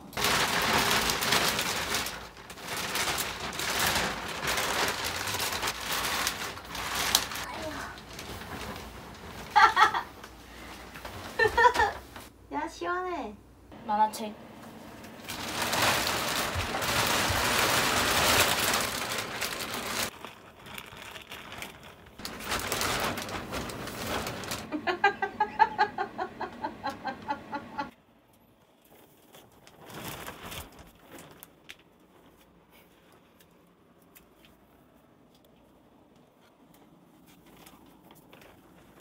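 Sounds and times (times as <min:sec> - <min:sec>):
plastic bag crinkling: 0:00.0 - 0:12.3, 0:15.1 - 0:25.6, 0:28.7 - 0:34.6.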